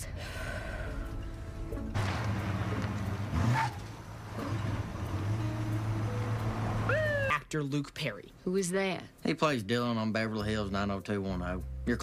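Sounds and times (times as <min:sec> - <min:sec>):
truck engine running: 0:01.9 - 0:06.9
tyre noise on road: 0:01.9 - 0:07.3.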